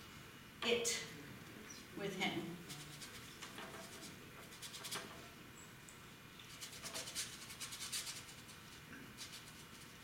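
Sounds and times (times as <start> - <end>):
paintbrush scrubbing on canvas: 2.6 - 5.2, 6.5 - 10.0.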